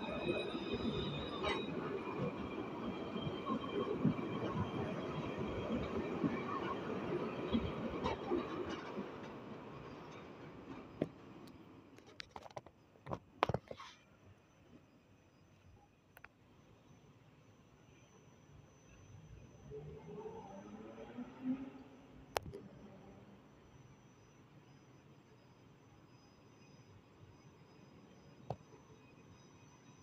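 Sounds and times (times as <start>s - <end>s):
tram wheels rumbling on rails: 0.0s - 11.8s
faint high whine: 14.0s - 30.0s.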